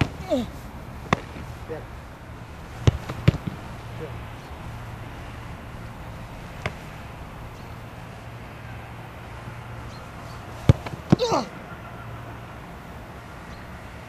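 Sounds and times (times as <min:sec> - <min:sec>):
steady low hum: 0:00.0 - 0:14.0
football kicked hard: 0:02.8 - 0:03.6, 0:10.6 - 0:11.2
thud of ball being stopped: 0:10.6 - 0:11.2
short cry falling in pitch: 0:11.2 - 0:11.5.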